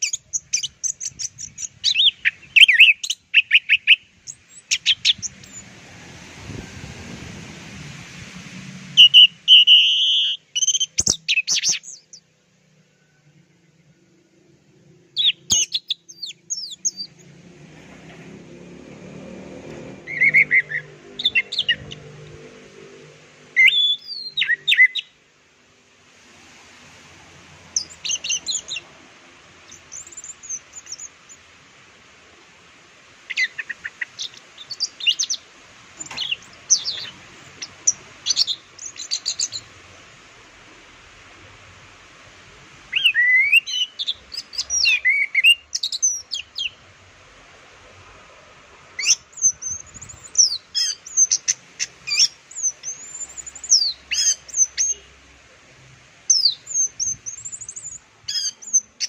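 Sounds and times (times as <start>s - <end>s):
thrush singing high whistles: 9.0s - 12.1s, 20.0s - 22.0s, 42.9s - 46.8s.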